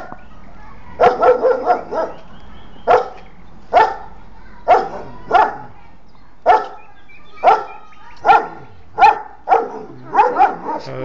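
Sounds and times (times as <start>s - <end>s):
dog barking: 1.0s - 2.2s, 2.8s - 5.8s, 6.4s - 6.8s, 7.4s - 11.0s.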